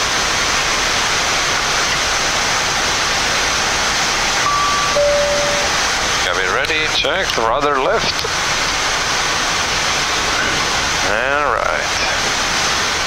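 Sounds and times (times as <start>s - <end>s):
two-note electronic chime: 4.4s - 5.9s.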